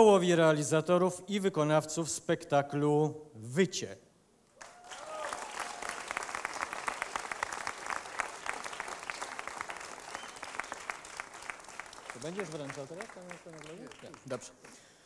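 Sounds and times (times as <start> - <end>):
audience applauding: 4.6 - 14.9.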